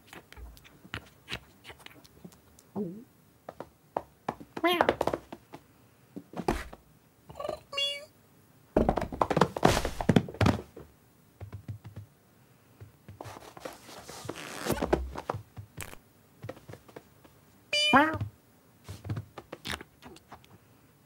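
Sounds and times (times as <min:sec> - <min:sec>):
thumps and scuffles: 0:03.5 - 0:05.6, 0:06.2 - 0:06.8, 0:08.8 - 0:11.8, 0:12.8 - 0:17.4, 0:18.0 - 0:20.4
kitten mewing: 0:07.3 - 0:08.1
scratchy rustling: 0:13.2 - 0:16.0.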